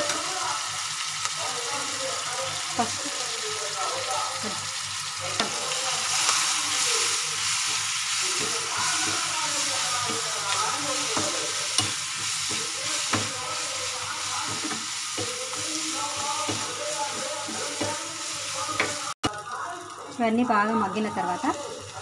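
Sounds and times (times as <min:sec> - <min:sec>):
food sizzling in hot oil: 0:00.0 - 0:22.0.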